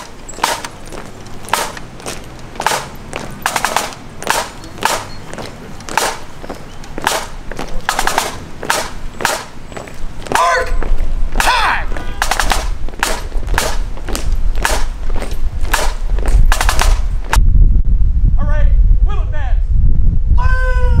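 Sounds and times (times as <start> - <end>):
drum beating marching cadence: 0.0 - 17.4
wind rumble on microphone: 9.8 - 21.0.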